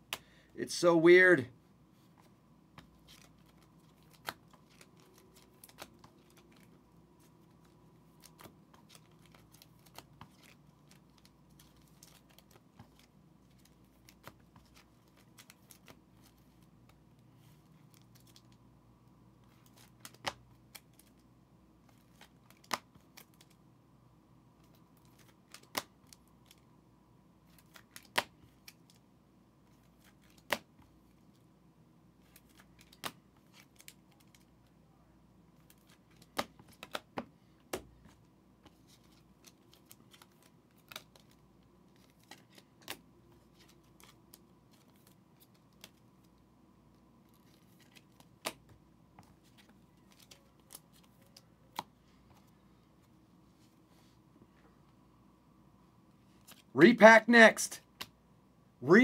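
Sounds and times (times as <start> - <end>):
trading cards handled: 2.0 - 18.6, 19.4 - 23.6, 32.2 - 34.7, 35.6 - 46.4, 47.2 - 53.7.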